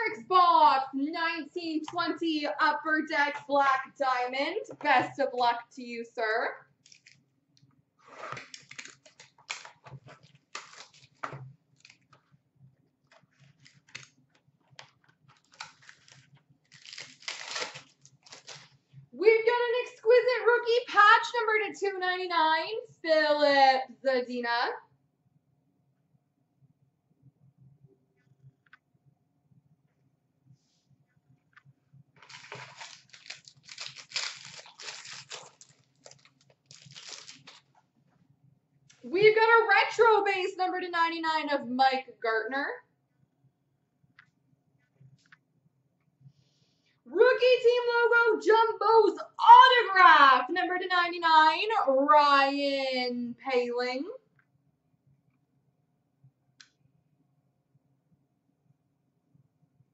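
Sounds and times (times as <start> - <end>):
plastic shrink-wrap crinkling: 6.8 - 7.2, 8.1 - 12.2, 13.0 - 18.8, 32.2 - 37.8.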